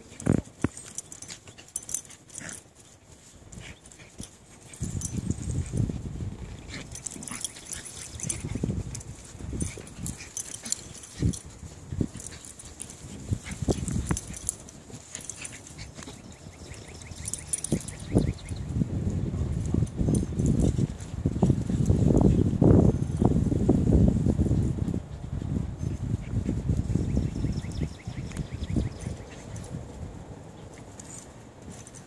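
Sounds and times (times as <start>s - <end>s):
small dogs growling: 4.0s - 18.1s.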